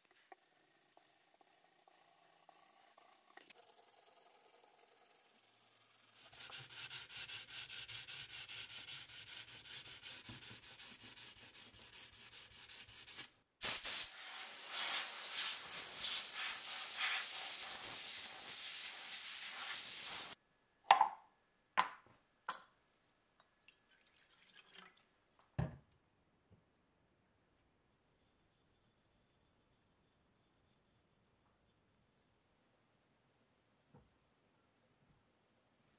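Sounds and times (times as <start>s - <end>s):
compressed air blow gun hissing: 13.6s - 20.4s.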